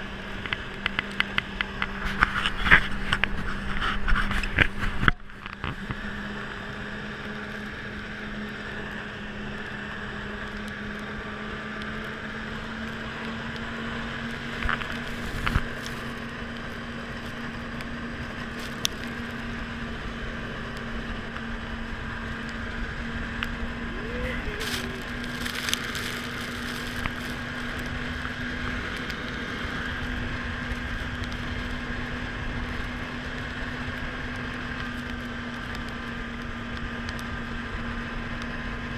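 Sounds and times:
snowmobile engine drone: 0.0 - 38.9.

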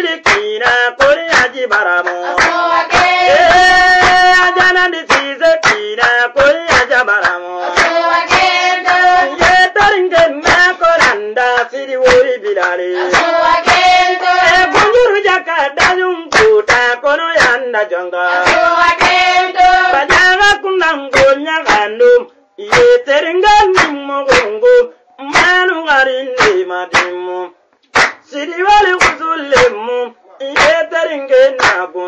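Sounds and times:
voices singing a chant: 0.0 - 16.8, 17.4 - 21.4
steady handclaps: 0.0 - 17.7, 18.3 - 27.2, 27.8 - 29.8, 30.6 - 31.9.

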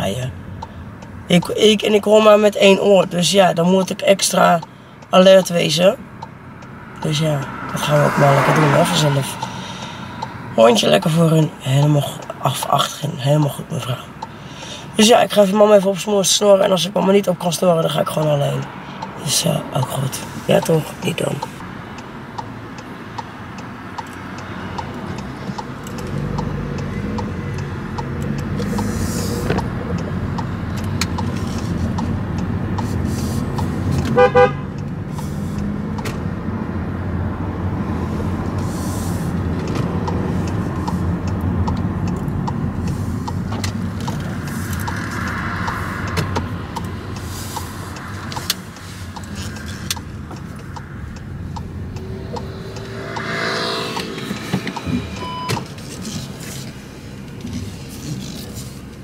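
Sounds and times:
car engine and road noise: 0.0 - 59.0
short car horn toot: 34.2 - 34.7.

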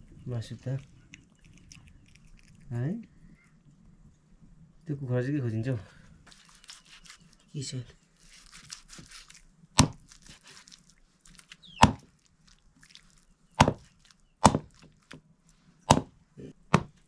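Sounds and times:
blade chopping meat: 9.8 - 10.0, 11.8 - 12.1, 13.6 - 14.8, 15.9 - 16.1.

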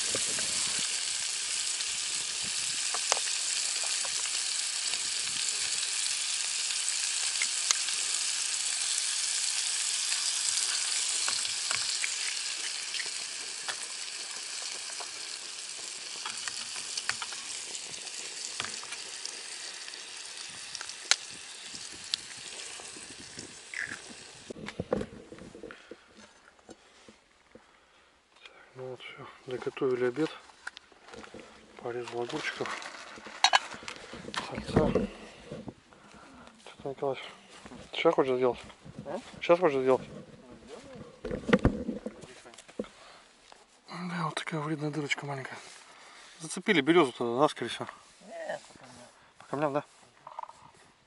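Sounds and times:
fat sizzling in a pan: 0.0 - 24.6.

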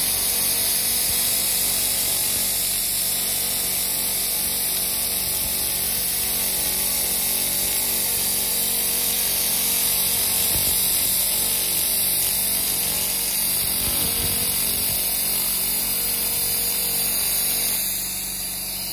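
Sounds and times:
laser cleaner high hiss: 5.0 - 18.9.

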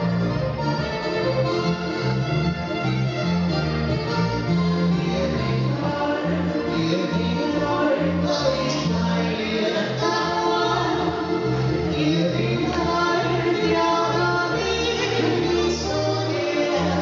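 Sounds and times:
accordion: 0.0 - 17.0
bass line: 0.0 - 17.0
two men singing in harmony: 5.5 - 17.0.

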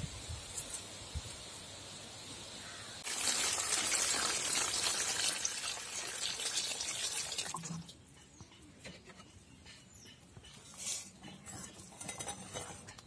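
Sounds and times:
water pouring onto metal plate: 3.0 - 8.0.

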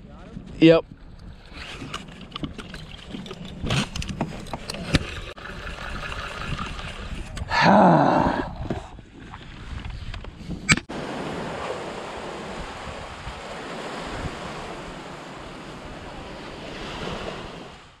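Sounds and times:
wind buffeting microphone: 0.0 - 10.8, 11.5 - 17.9
sharp click: 10.7 - 10.9
surf washing on beach: 10.9 - 18.0.

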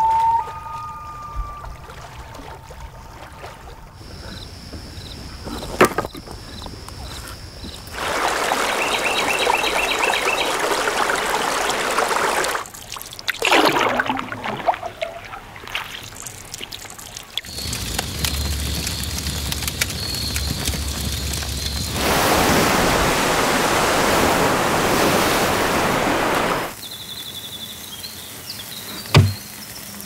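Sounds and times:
loon calling: 0.0 - 2.1
water dripping: 0.0 - 5.2, 6.3 - 26.8
paddle swishing through water: 0.1 - 17.8, 21.0 - 26.8
loud rushing noise: 21.9 - 26.8
log knocking on woodpile: 29.1 - 29.4.

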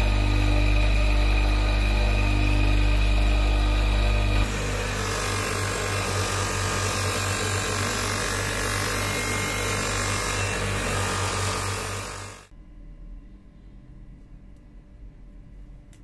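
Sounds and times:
bench motor whirring: 0.0 - 12.5.

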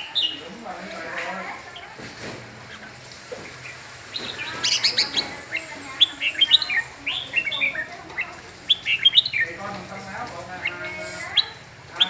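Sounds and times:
bird singing whistled notes: 8.7 - 9.6.

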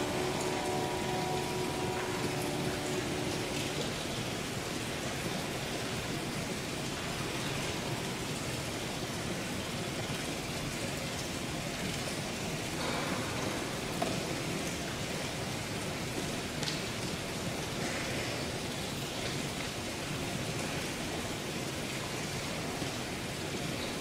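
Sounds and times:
steady hiss: 0.0 - 4.4
held musical chord: 0.0 - 4.9.

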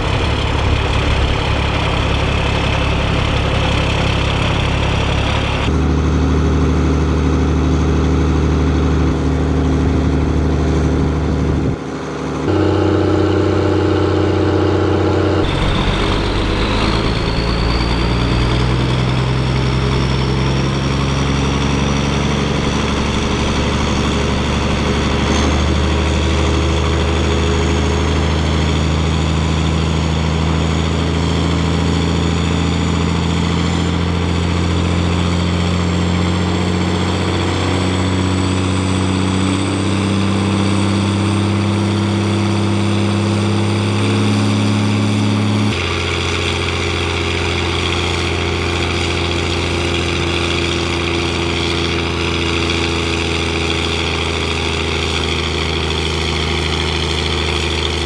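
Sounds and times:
high whine: 0.0 - 35.2
diesel tractor engine running hard: 0.0 - 58.0.

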